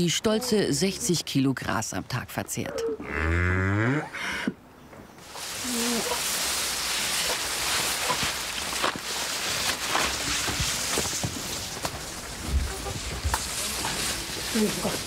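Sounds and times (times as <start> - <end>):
dry grass rustling through brush: 5.2 - 15.0.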